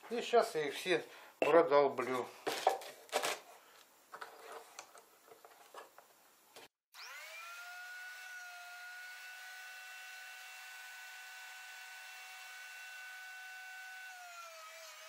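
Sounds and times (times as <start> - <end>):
electric router motor whine: 7.0 - 15.0.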